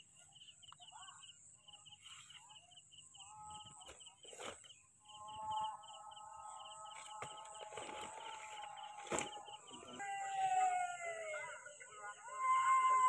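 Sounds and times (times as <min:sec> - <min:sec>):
long held animal call: 0:03.0 - 0:03.9, 0:05.0 - 0:13.0
handling knocks and rustles: 0:07.1 - 0:09.5.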